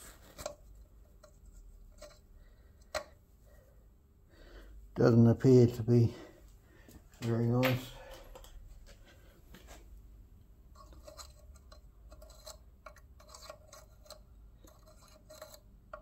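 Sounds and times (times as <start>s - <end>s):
metal pick clicking and scraping: 0.3s - 3.2s, 10.7s - 16.0s.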